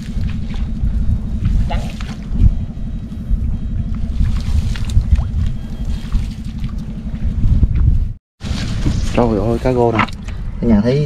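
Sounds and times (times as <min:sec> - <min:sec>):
steady low rumble: 0:00.0 - 0:11.0
water splashing and trickling: 0:04.1 - 0:07.1.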